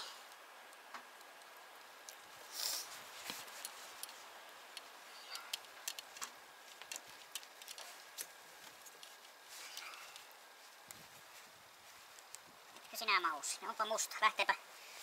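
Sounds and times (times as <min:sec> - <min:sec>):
small clicks of wiring: 0:03.2 - 0:11.1, 0:12.1 - 0:13.0.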